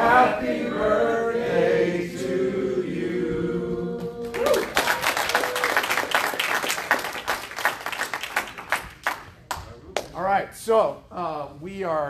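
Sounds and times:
audience clapping: 4.2s - 10.2s.

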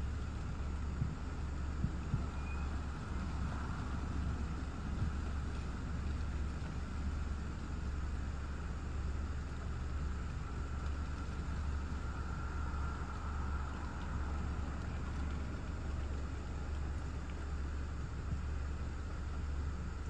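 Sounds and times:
rushing wind with low rumble: 0.0s - 20.0s.

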